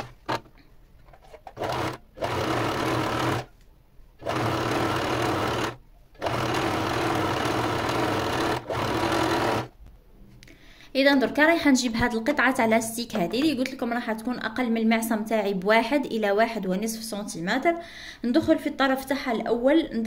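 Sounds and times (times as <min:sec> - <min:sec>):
sewing machine stitching: 0:00.0 - 0:00.5, 0:01.4 - 0:03.5, 0:04.2 - 0:09.7.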